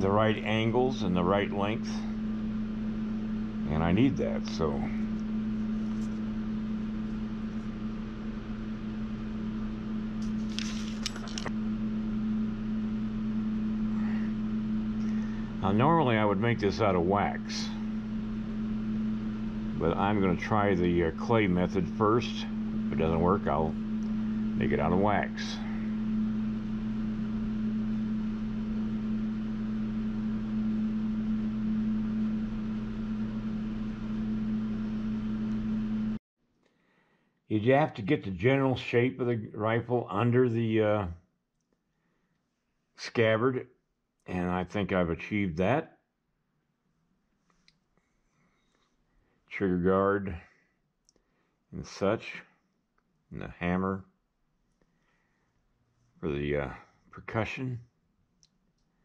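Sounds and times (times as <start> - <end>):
low machine hum: 0.0 - 36.2, 54.9 - 59.0
paper rustle: 10.2 - 11.5.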